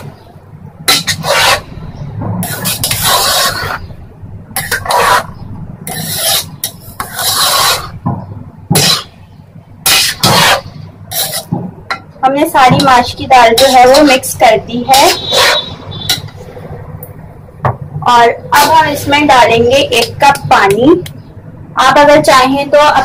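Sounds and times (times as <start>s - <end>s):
spoon scraping metal pot: 0.9s - 1.8s, 2.4s - 3.9s, 4.6s - 8.0s, 8.8s - 9.2s, 9.8s - 11.5s, 12.8s - 16.4s.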